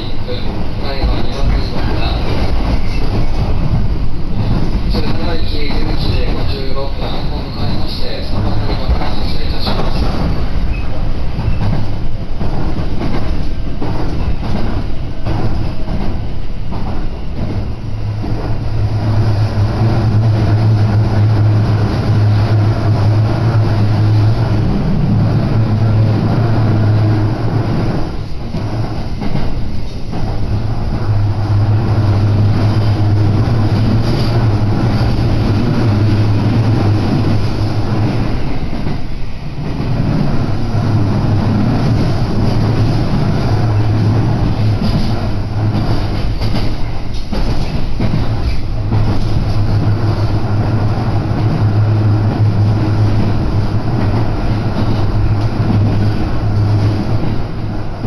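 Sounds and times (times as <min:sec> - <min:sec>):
train rumble and hum: 0:00.0 - 0:58.0
wheels clattering over rail joints: 0:39.7 - 0:50.6.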